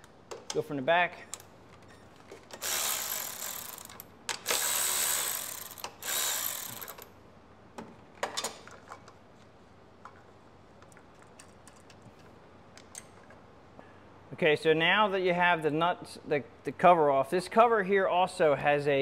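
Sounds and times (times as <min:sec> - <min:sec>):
electric ratchet spinning: 0:02.5 - 0:07.1.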